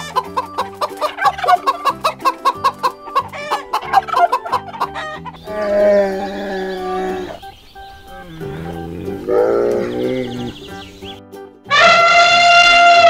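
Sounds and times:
background music with a beat: 0.0 - 5.5
rooster clucking: 0.0 - 13.0
long held animal call: 1.0 - 13.0.

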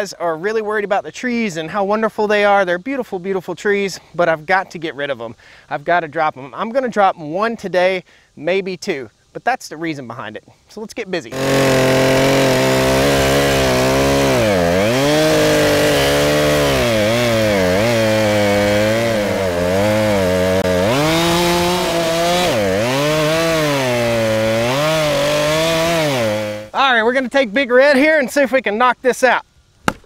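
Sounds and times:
chainsaw cutting tree trunk: 11.3 - 26.7.

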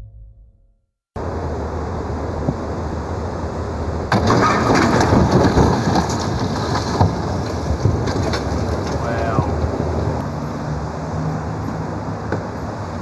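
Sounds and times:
crunching and cracking: 4.1 - 9.6.

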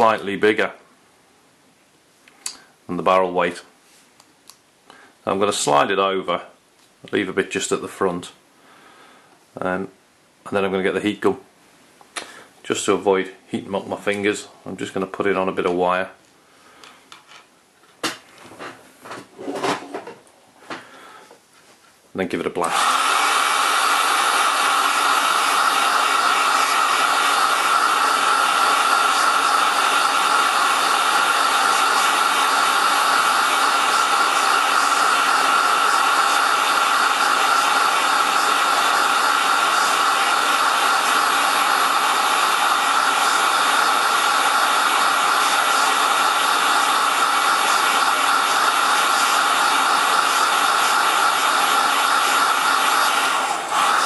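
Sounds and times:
heat gun blowing with whine: 22.6 - 54.0.

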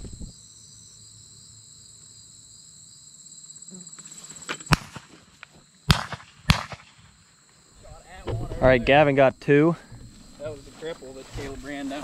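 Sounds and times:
crickets chirping: 0.0 - 12.0
sharp cracks: 4.5 - 7.2.

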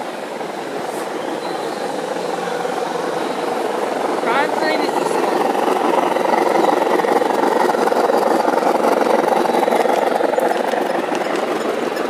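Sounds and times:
model train running on track: 0.0 - 12.0.

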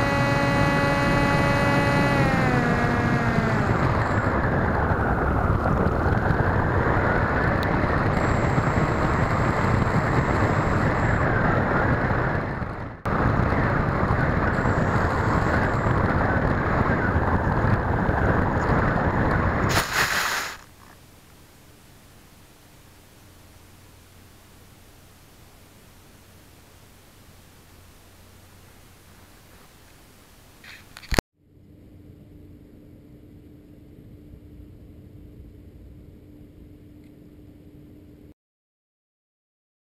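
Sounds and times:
air rushing over camera: 0.0 - 20.8
faint hiss: 19.7 - 31.0.

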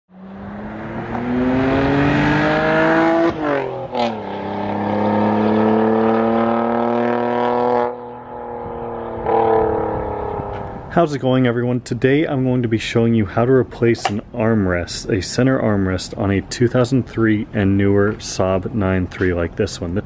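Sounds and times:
car engine accelerating: 0.1 - 11.0.

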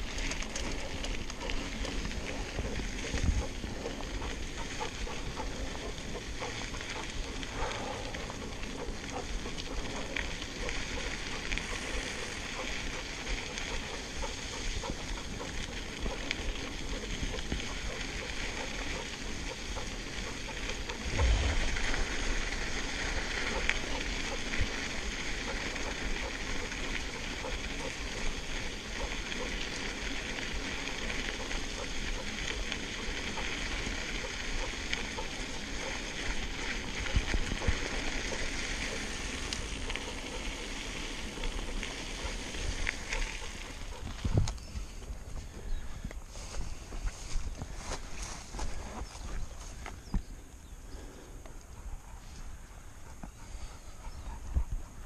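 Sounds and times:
bike tyres crunching on gravel: 0.0 - 50.8
wind rumble on microphone: 1.2 - 10.2, 20.9 - 24.9, 53.9 - 55.0.

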